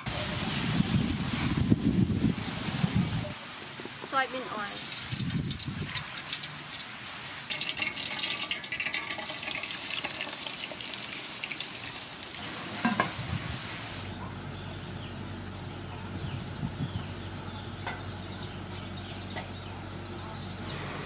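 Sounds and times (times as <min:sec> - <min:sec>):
pork sizzling in hot oil: 0:00.0 - 0:14.1.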